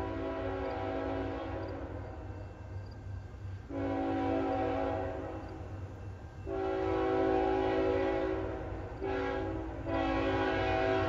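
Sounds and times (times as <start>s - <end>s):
locomotive air horn blasts: 0.0s - 2.0s, 3.7s - 5.4s, 6.5s - 11.0s.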